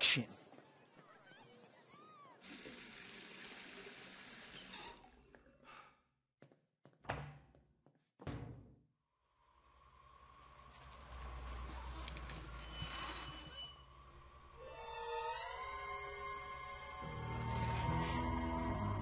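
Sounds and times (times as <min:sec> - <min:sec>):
tap water running into sink: 0:02.4 - 0:05.1.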